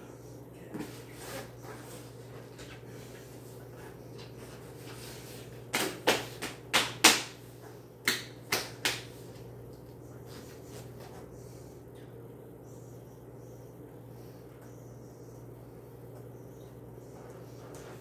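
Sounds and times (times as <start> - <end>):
hand claps: 5.7 - 7.4, 8.0 - 9.9.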